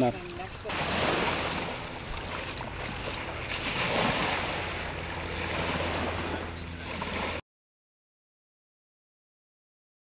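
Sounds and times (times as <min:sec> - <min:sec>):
small waves washing onto shore: 0:00.0 - 0:07.4.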